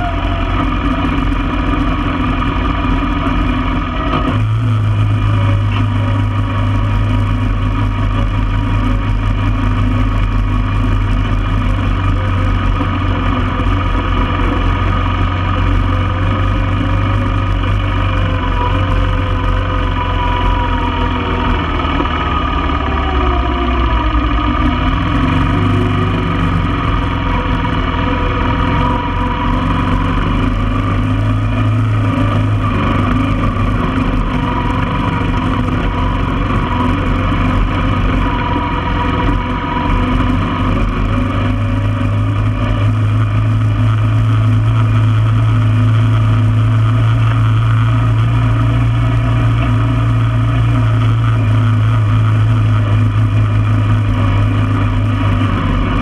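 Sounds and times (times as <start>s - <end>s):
atv engine running: 0.0s - 56.0s.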